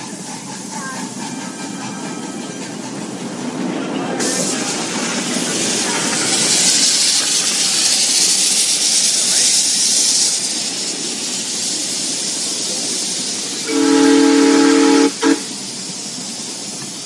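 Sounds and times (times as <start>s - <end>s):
steam locomotive hissing: 0.0s - 17.0s
steam whistle blast: 13.6s - 15.5s.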